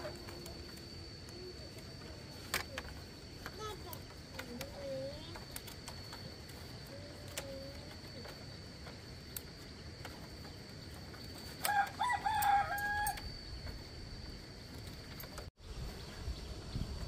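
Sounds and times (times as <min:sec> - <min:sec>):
light clicks of bamboo strips: 0:00.0 - 0:13.9
thin steady high tone: 0:00.0 - 0:15.5
rooster crowing: 0:11.6 - 0:13.4.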